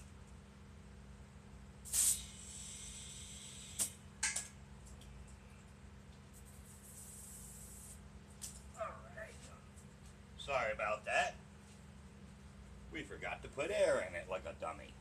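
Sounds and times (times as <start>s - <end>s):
burst of hissing air: 1.8s - 4.0s, 6.7s - 8.0s.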